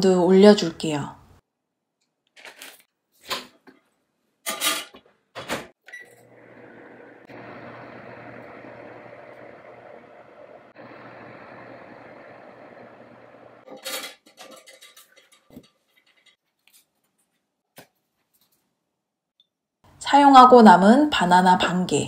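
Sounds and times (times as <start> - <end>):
oven fan hum: 6.2 - 13.7.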